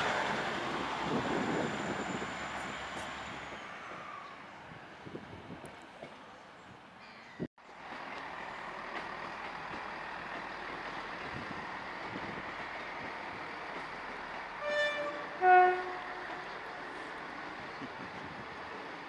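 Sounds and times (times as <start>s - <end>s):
train two-tone horn: 14.6s - 16.7s.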